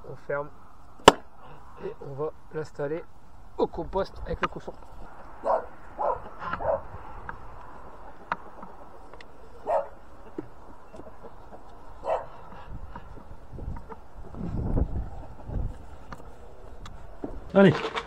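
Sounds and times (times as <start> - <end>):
dog barking: 5.4 - 6.9, 9.6 - 10.0, 12.0 - 12.5.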